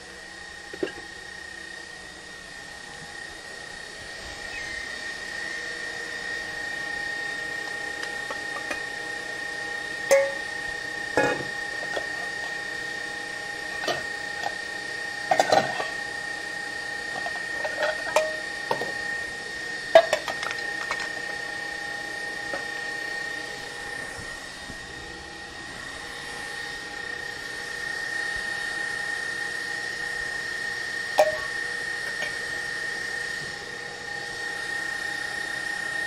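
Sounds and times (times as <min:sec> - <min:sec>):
kitchen utensils clinking: 0:10.1 - 0:10.4, 0:15.3 - 0:16.0, 0:17.2 - 0:18.8.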